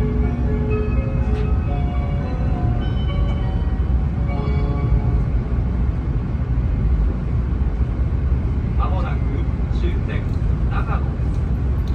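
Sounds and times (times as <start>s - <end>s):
bell-like tone melody: 0.0s - 5.2s
train rumbling inside cabin: 0.0s - 11.9s.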